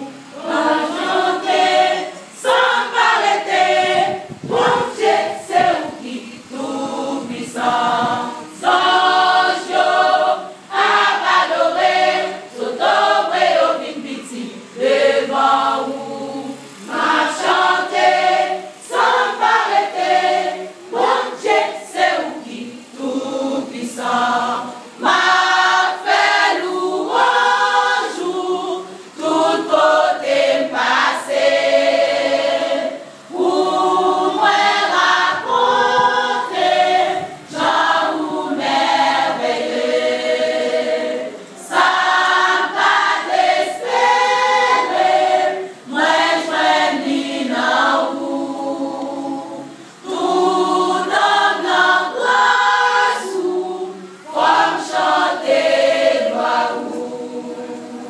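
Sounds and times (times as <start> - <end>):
women's choir singing: 0.0 - 58.0.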